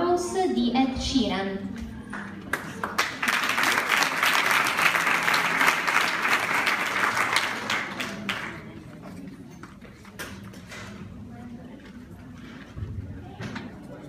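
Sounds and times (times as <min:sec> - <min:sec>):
audience applauding: 0:02.2 - 0:08.8.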